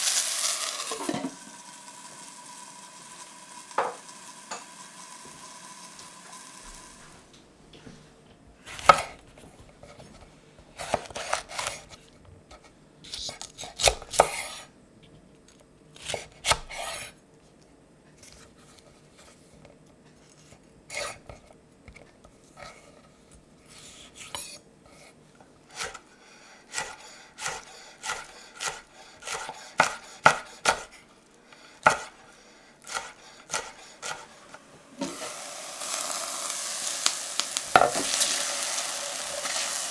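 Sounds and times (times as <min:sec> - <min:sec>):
knife chopping on wooden board: 0:26.8 - 0:30.9, 0:31.8 - 0:32.1, 0:32.9 - 0:34.3.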